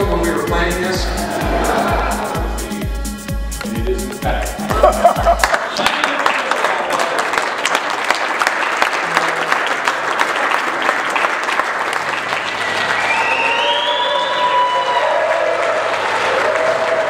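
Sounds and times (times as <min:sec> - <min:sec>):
steady tones: 0:00.0 - 0:05.4
audience applauding: 0:04.7 - 0:17.0.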